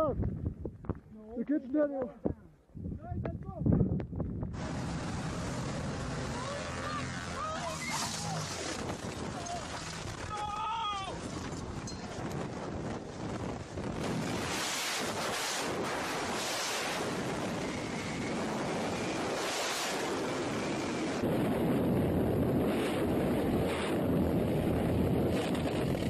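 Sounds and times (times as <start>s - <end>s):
wind buffeting microphone: 0.0s - 1.1s, 2.2s - 6.3s, 8.2s - 26.0s
engine noise: 4.5s - 10.3s.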